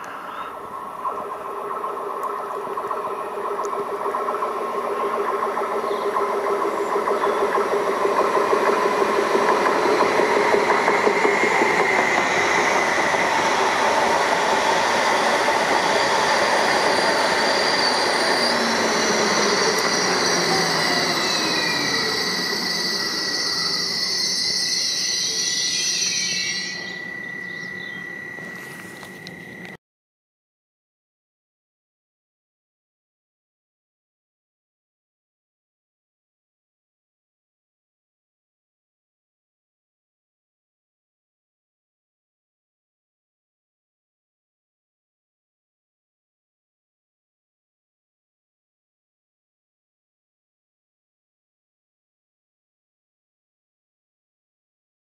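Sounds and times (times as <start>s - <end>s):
electric train passing: 0.0s - 29.8s
high-pitched whining tones: 0.0s - 29.8s
faint steady high tone: 14.9s - 29.8s.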